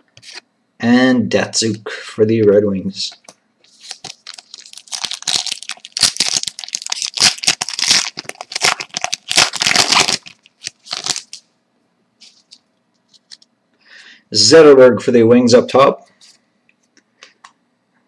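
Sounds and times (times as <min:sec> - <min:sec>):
wrapper tearing and crinkling: 0:03.7 - 0:11.4.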